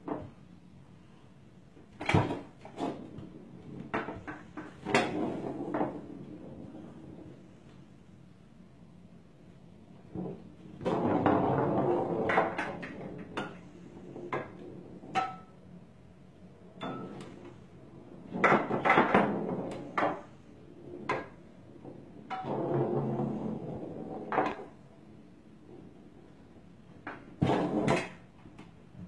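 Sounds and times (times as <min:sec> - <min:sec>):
foosball rods clattering: 0:01.9 - 0:07.4, 0:10.0 - 0:15.7, 0:16.8 - 0:24.9, 0:25.6 - 0:29.0.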